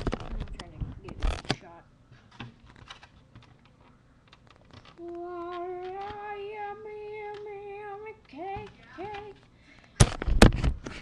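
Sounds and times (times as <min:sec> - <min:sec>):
young voice singing: 0:05.0 - 0:09.4.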